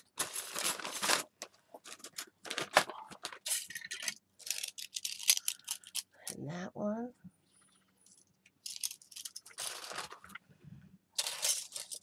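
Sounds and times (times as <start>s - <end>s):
metal pieces rustling and sliding: 0.2s - 6.1s, 8.0s - 10.4s, 11.2s - 12.0s.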